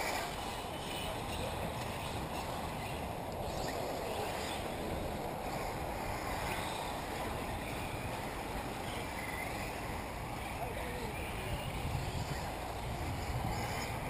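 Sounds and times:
remote control buggies whining: 0:00.0 - 0:08.1
wind rumble: 0:00.0 - 0:14.0.

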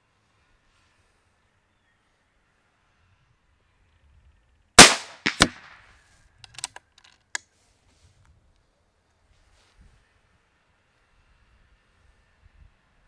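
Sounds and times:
air rifle shot: 0:04.8 - 0:05.8
rifle action clicks: 0:04.8 - 0:05.8
sharp cracks: 0:04.8 - 0:05.9.

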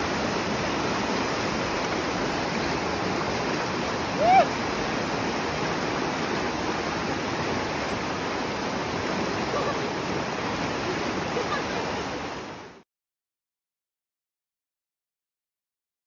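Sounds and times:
rush of fast whitewater: 0:00.0 - 0:12.8.

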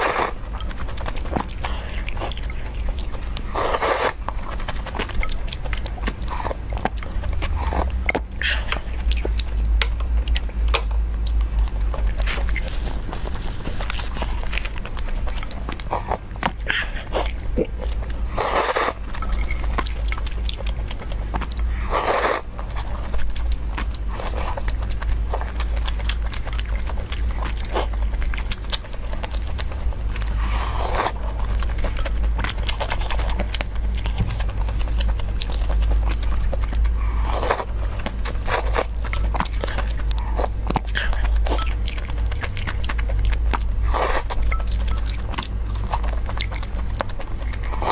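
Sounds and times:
chewing and wet mouth sounds: 0:00.0 - 0:47.9
steady low hum: 0:00.0 - 0:47.9
slurping soup: 0:03.5 - 0:04.2, 0:18.4 - 0:19.0, 0:21.8 - 0:22.5.

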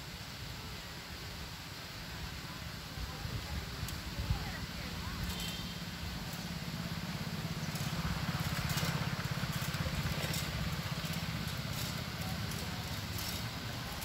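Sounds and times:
low engine rumble: 0:02.3 - 0:14.0.

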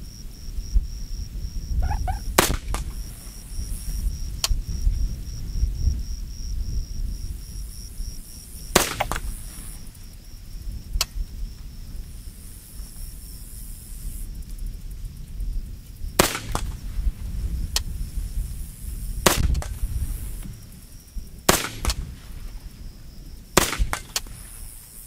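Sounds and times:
rifle shots: 0:02.3 - 0:03.0, 0:08.8 - 0:09.3, 0:16.2 - 0:16.8, 0:19.2 - 0:19.8, 0:21.5 - 0:22.1, 0:23.6 - 0:24.4.

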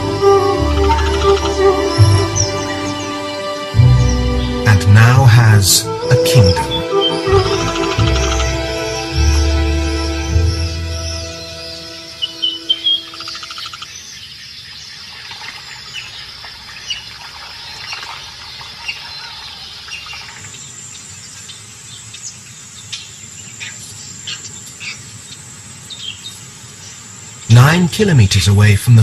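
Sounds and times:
high insect whine: 0:00.0 - 0:04.7, 0:05.8 - 0:14.5
background music: 0:00.0 - 0:13.4
birds chirping and calling: 0:00.0 - 0:27.9
insect chorus: 0:06.0 - 0:27.9.

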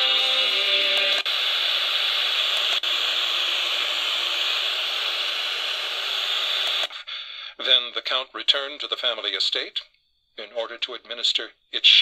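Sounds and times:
radio static hiss: 0:00.0 - 0:07.0, 0:10.4 - 0:12.0.

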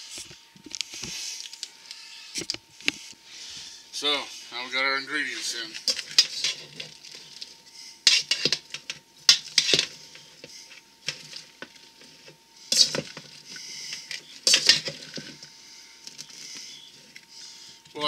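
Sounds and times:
metal utensil scraping steel bowl: 0:05.8 - 0:06.8.

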